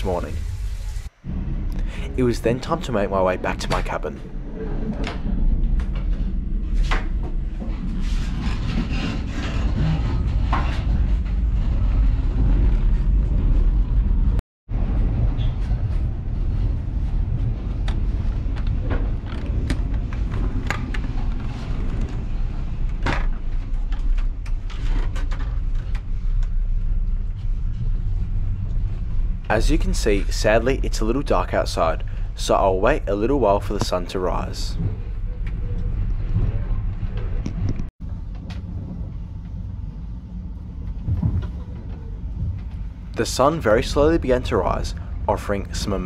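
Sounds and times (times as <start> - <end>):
train rumble from inside carriage: 1.3 - 24.5.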